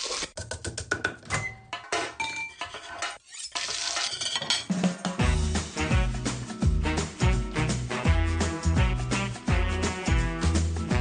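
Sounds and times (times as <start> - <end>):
music with bass and steady beat: 5.2 - 11.0.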